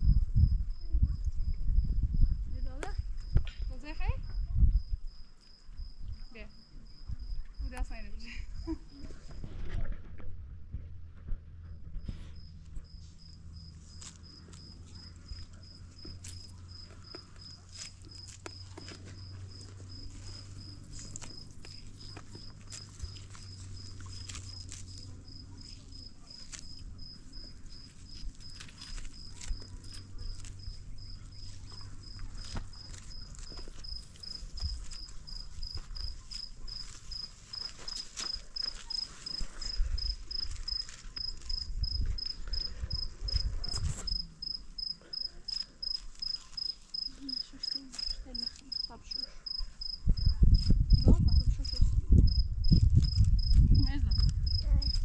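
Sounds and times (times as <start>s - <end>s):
low thuds and rumbling: 0.0s - 5.2s
cricket chirping: 0.0s - 9.6s, 11.6s - 55.0s.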